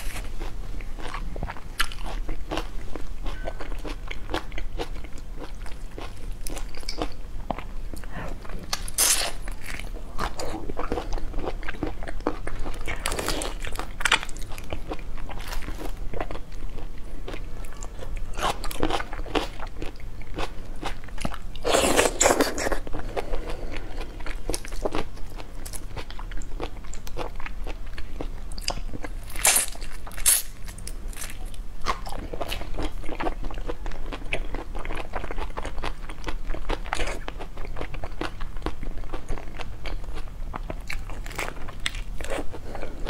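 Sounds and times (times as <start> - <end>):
shrimp shells crunching as peeled: 29.3 - 32.6.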